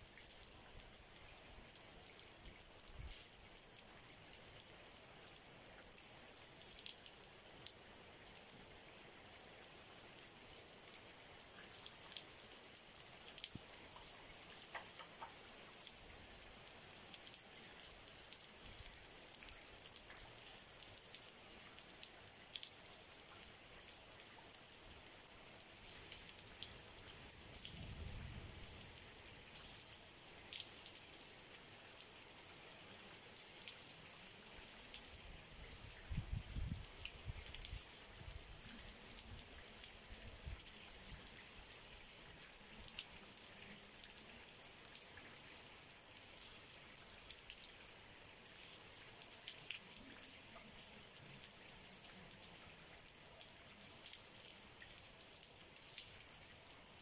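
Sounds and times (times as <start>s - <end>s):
light rain on stone paving: 0.0s - 57.0s
single raindrops ticking: 13.3s - 16.0s, 54.0s - 56.2s.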